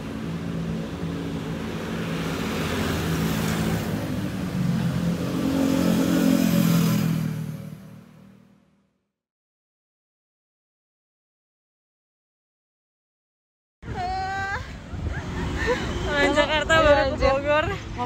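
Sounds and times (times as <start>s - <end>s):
cars and scooters passing: 0.0s - 8.9s, 13.9s - 18.0s.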